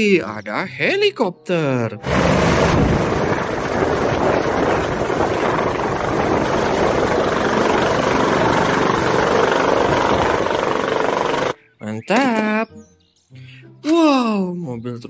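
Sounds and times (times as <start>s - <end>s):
helicopter rotor and engine noise: 2.0s - 11.6s
high turbine whine: 2.0s - 11.6s.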